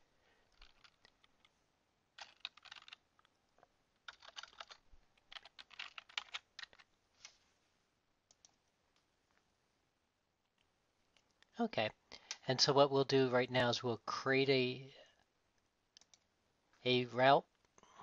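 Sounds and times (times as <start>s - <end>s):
typing on computer keyboard: 0.5s - 1.5s, 2.2s - 3.3s, 4.0s - 6.9s.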